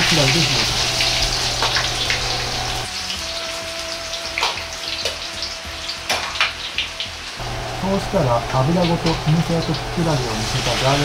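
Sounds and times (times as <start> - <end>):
food deep-frying in oil: 0.0 - 11.0
sharp oil crackles: 0.0 - 11.0.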